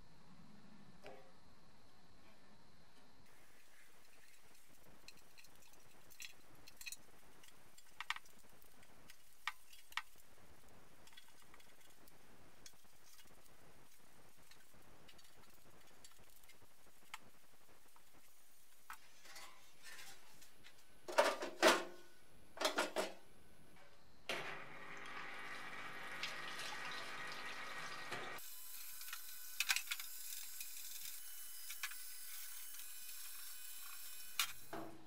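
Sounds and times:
pump humming: 0:24.3 - 0:28.6.

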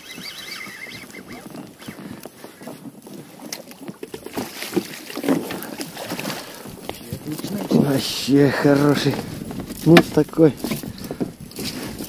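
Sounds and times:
water splashing against inflatable boat: 0:00.0 - 0:12.0
fish thrashing in landing net: 0:04.0 - 0:08.0.

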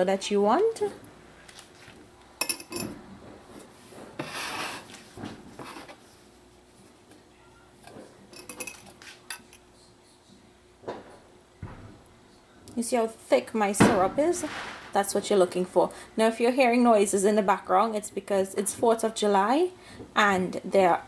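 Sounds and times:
cookware clinks and knocks: 0:02.4 - 0:03.0, 0:08.4 - 0:09.6
spatula scraping in saucepan: 0:04.2 - 0:05.0, 0:05.6 - 0:06.0.

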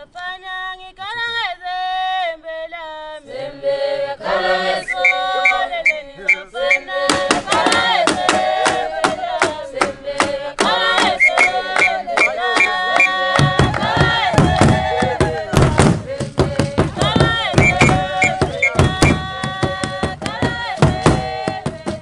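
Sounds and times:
women singing in chorus: 0:00.0 - 0:22.0
whistle blasts: 0:04.8 - 0:06.9, 0:11.0 - 0:13.2, 0:17.6 - 0:19.2
handclaps: 0:07.1 - 0:15.9
heavy drum beats: 0:10.6 - 0:22.0.

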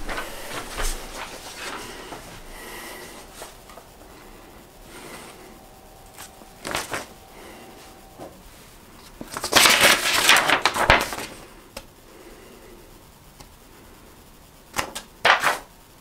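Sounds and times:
paper rustling: 0:00.0 - 0:03.8, 0:06.2 - 0:07.1, 0:09.0 - 0:11.4, 0:15.2 - 0:15.6.

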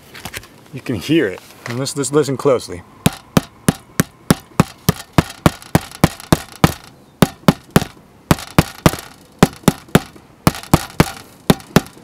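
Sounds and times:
hammer knocking on shingled roof: 0:03.1 - 0:12.0.

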